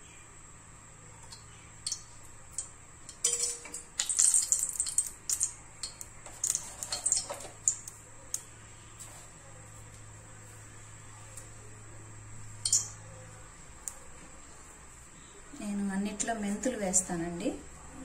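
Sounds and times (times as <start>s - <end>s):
oil crackling and popping in a pan: 1.2s - 8.5s.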